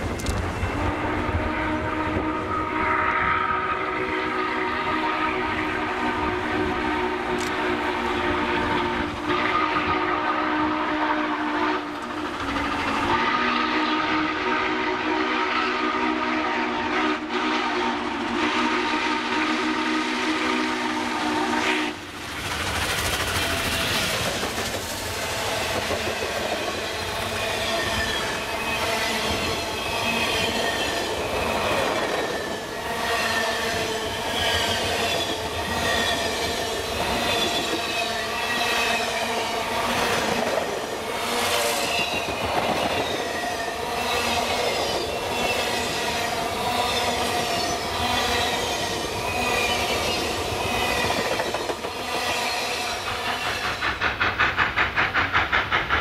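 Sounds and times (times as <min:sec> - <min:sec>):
rail-joint clatter: 0:00.0 - 0:00.8, 0:07.3 - 0:07.7, 0:11.9 - 0:13.1, 0:49.6 - 0:56.0
train wheels rumbling on rail: 0:00.0 - 0:56.0
steam locomotive whistle: 0:00.6 - 0:22.2, 0:25.0 - 0:55.3
high wheel squeals: 0:26.5 - 0:39.5, 0:41.7 - 0:53.8.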